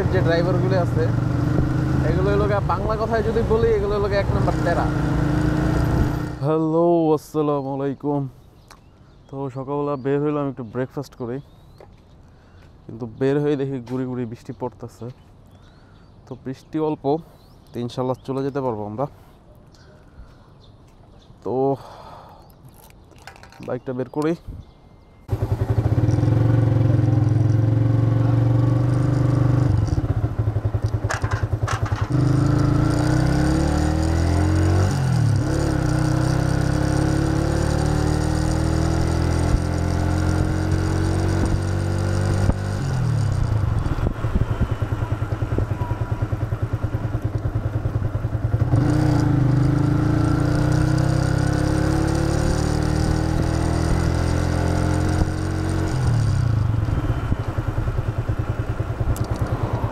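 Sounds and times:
motorcycle engine accelerating: 0.0 - 6.5, 25.3 - 59.9.

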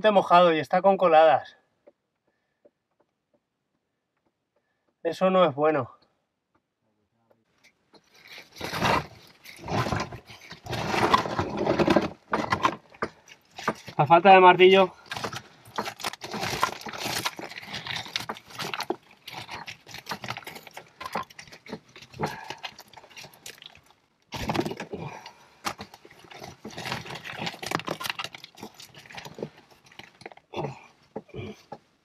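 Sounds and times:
rocks clinking and scraping: 7.6 - 31.9.

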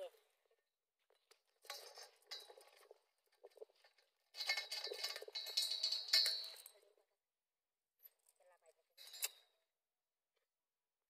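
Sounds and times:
metallic clinking and clattering: 1.6 - 6.9, 9.0 - 9.5.

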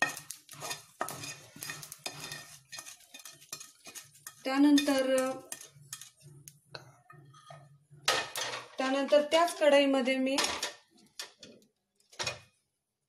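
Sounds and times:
wooden spatula scraping a pan: 0.0 - 9.7.

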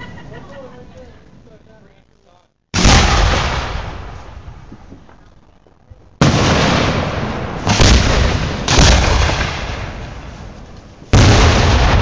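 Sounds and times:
firework booms with rumble: 2.8 - 5.1, 6.2 - 12.0.

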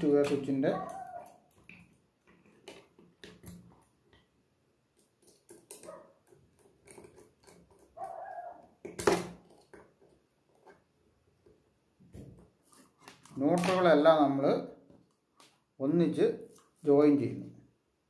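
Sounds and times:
screwdriver clicks and taps: 4.9 - 7.9.

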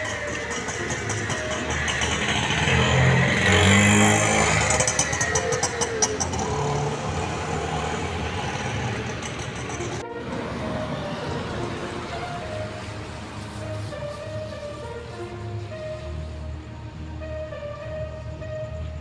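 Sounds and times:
car driving past: 0.0 - 15.0.

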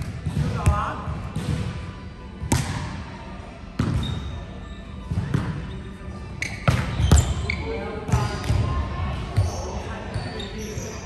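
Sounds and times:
volleyball thuds on hard court: 2.5 - 2.8.

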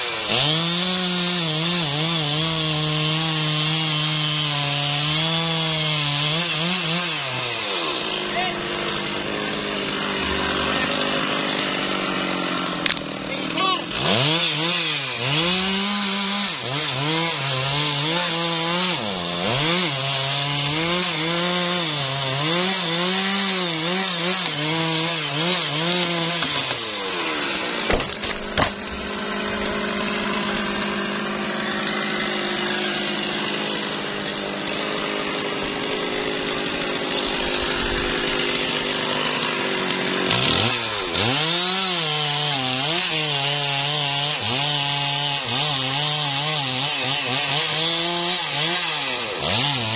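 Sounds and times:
chainsaw cutting wood: 0.0 - 49.9
sharp knocks: 27.8 - 29.0.

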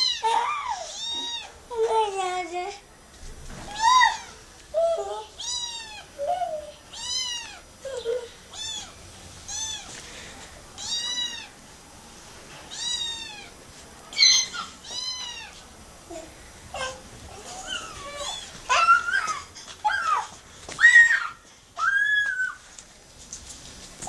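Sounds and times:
kitten meowing: 5.4 - 6.1, 6.9 - 7.6, 8.5 - 9.9, 10.8 - 11.5, 12.7 - 13.5, 14.1 - 15.5.

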